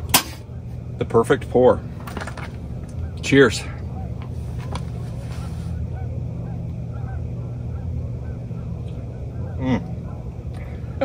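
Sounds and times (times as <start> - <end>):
geese honking in the distance: 0.0 - 11.0
steady low hum: 0.0 - 11.0.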